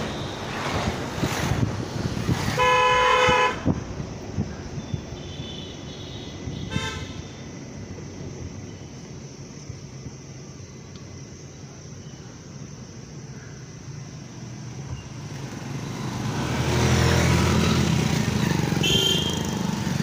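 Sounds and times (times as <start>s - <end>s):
road and wind noise: 0.0s - 20.0s
vehicle horn honking: 2.6s - 3.7s, 5.2s - 7.3s, 18.8s - 19.6s.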